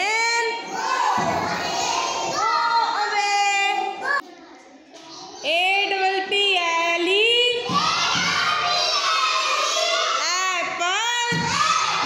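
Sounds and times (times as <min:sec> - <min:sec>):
children singing: 0:00.6 - 0:02.6, 0:07.7 - 0:10.2.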